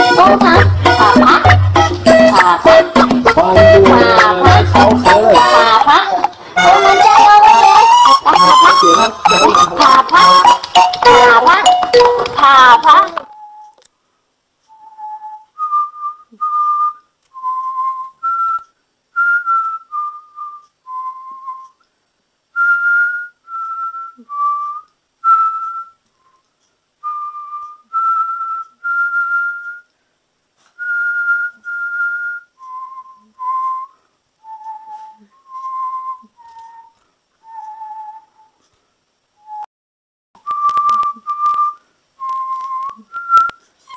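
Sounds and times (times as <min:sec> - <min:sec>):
person whistling a slow tune: 0:13.3 - 0:13.8, 0:14.7 - 0:21.8, 0:22.6 - 0:26.4, 0:27.0 - 0:29.9, 0:30.8 - 0:38.6, 0:39.4 - 0:39.7, 0:40.4 - 0:43.9.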